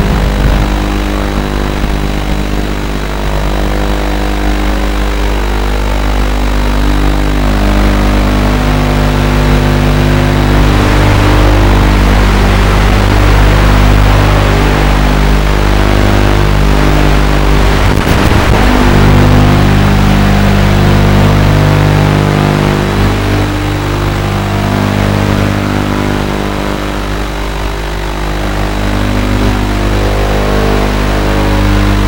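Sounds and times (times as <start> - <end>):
music with low chords: 6.1 - 26.8.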